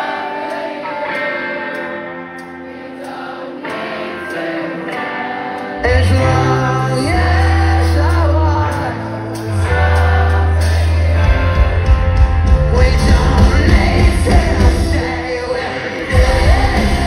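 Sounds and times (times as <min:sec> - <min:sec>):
drums: 0:00.0 - 0:17.0
live rock band playing: 0:00.0 - 0:17.0
man singing: 0:05.7 - 0:09.8, 0:12.4 - 0:17.0.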